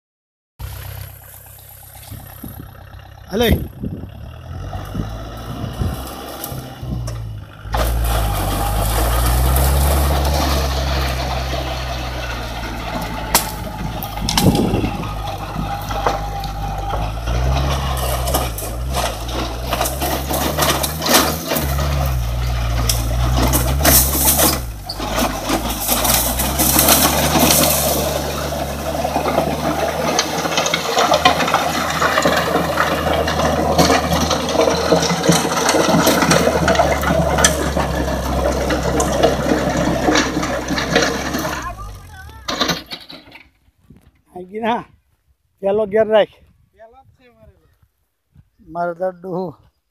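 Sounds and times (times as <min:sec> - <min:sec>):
rotary tiller churning soil: 0:00.6 - 0:43.5
tractor diesel engine under load: 0:00.6 - 0:44.9
branches knocking against blades: 0:06.0 - 0:39.1.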